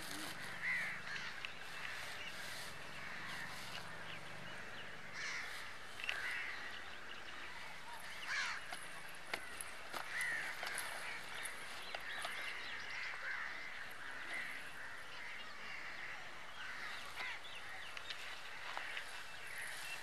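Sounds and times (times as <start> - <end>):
birds calling: 0.0 - 20.0.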